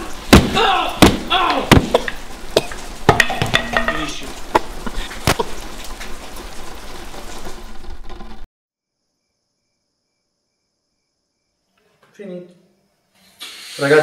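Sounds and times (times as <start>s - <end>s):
sharp thuds of blows: 0.0s - 3.5s
steady hiss: 0.0s - 7.9s, 13.1s - 14.0s
man grunting in pain: 0.5s - 1.7s.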